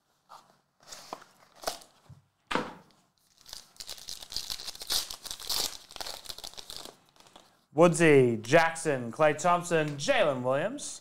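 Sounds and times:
plastic wrapper tearing: 3.2 - 7.6.

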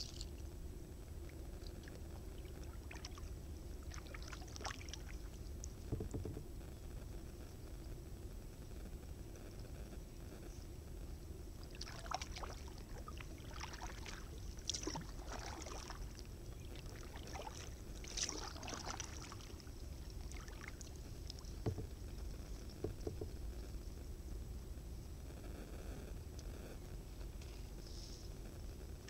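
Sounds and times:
paddle splashing water: 1.9 - 5.4, 11.6 - 22.0
light knocks: 21.6 - 22.0.

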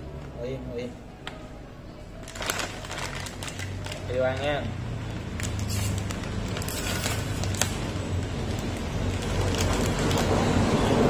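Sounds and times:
plastic snack pouch crinkling: 2.2 - 4.6, 5.3 - 10.4.

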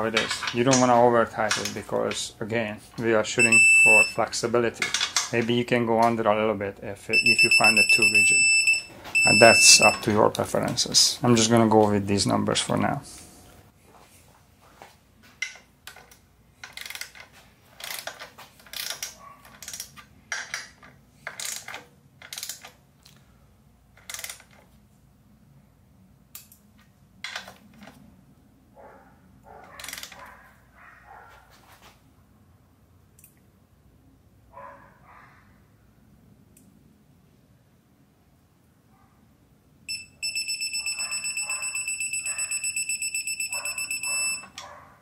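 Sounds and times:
ratchet wrench clicking: 21.3 - 22.7.

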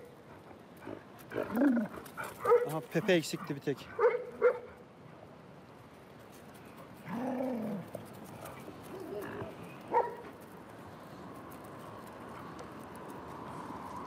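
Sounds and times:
dog moaning: 1.2 - 2.0
dog barking: 2.4 - 2.8, 3.9 - 4.8, 9.9 - 10.2.

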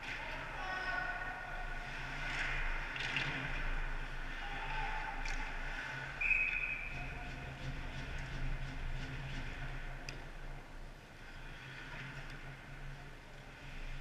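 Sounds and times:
faint distant noise from ice: 0.0 - 8.5
low arena hum: 0.0 - 14.0.

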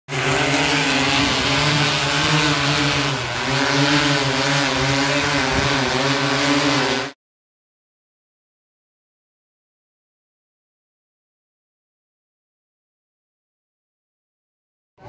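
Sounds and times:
drone propeller hum: 0.0 - 7.2.

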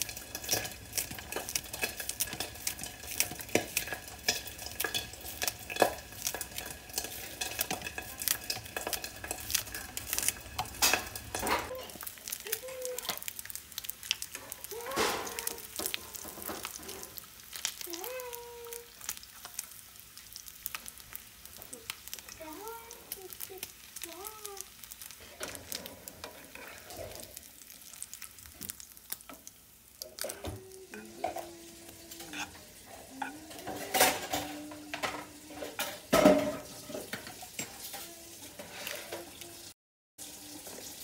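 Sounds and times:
utensil scraping a pan: 0.0 - 12.0, 14.3 - 17.2, 25.1 - 27.4, 30.1 - 39.4
food sizzling in a frying pan: 0.0 - 41.0.

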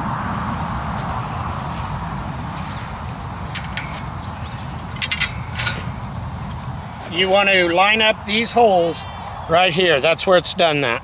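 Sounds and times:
metal bar clicking: 3.1 - 4.2, 4.9 - 6.1.

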